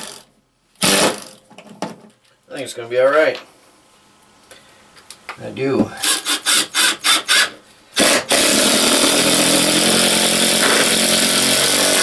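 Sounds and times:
cordless drill driving screws: 6.0s - 12.0s.

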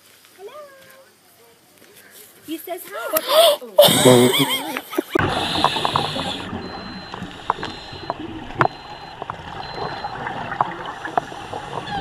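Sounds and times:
steady underwater noise: 5.0s - 12.0s
regulator bubbles gurgling underwater: 5.2s - 12.0s.

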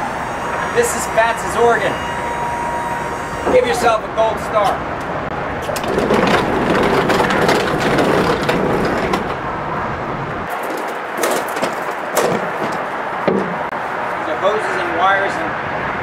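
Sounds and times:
crate on casters rumbling: 5.3s - 13.8s
footsteps: 10.4s - 13.8s
knocks of boxes: 10.5s - 13.7s.

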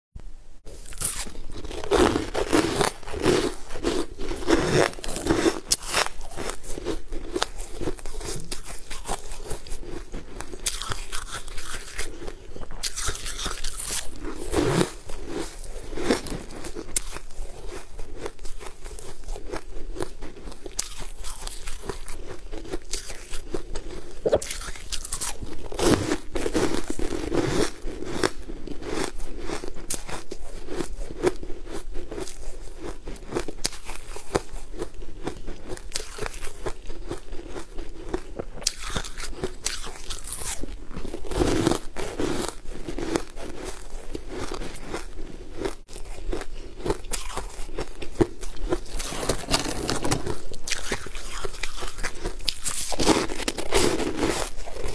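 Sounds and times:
crunchy frozen food chewing: 0.7s - 54.9s.

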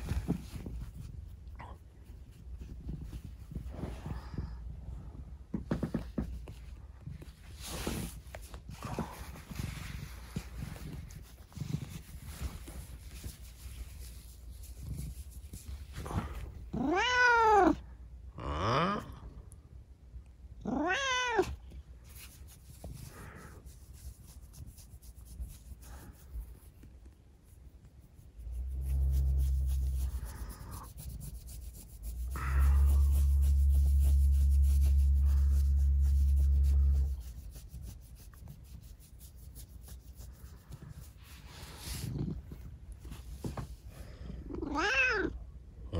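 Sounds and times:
steady low rumble: 0.0s - 17.0s, 21.5s - 44.6s
cat meowing: 16.7s - 17.8s, 20.6s - 21.6s, 44.6s - 45.4s.

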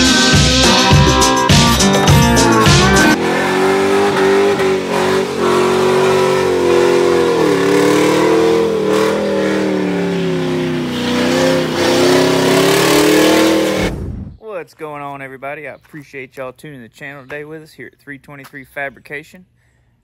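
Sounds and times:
car engine at high revs: 2.2s - 14.1s.

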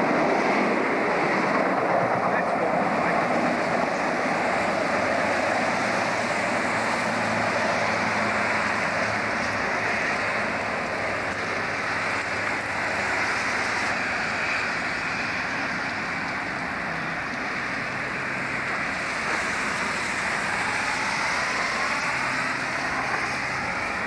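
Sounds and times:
distant diesel locomotive hum: 0.0s - 24.0s.

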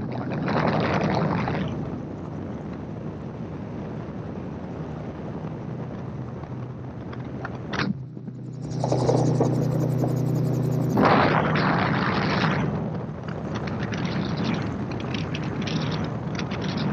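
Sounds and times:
wind rushing on microphone: 0.0s - 16.9s
aircraft engine drone: 6.0s - 15.0s.

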